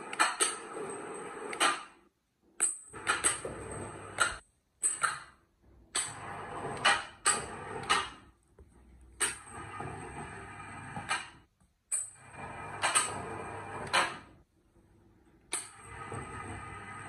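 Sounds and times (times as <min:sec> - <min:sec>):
electric winch running: 0:09.4 - 0:11.2, 0:12.2 - 0:14.1, 0:15.7 - 0:17.0.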